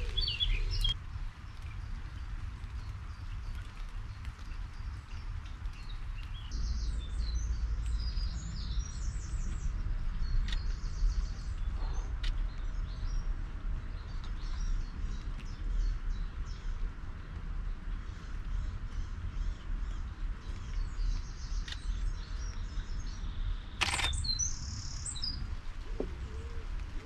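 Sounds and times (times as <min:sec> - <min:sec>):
songbirds twittering: 0:00.0 - 0:27.0
sharp clicks: 0:23.8 - 0:24.4.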